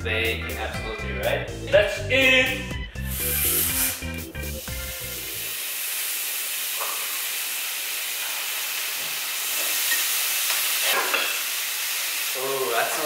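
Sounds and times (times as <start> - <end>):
background music: 0.0 - 5.6
meat sizzling on a griddle: 3.1 - 13.0.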